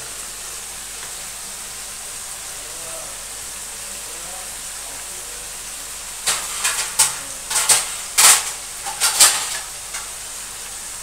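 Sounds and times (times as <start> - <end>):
vegetables sizzling in a pan: 0.0 - 11.0
scraping stir strokes in pan: 6.2 - 10.2.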